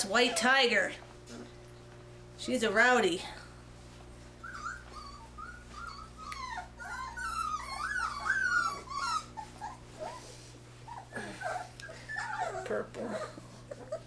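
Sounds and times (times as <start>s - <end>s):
puppies whining and yelping: 4.3s - 14.0s.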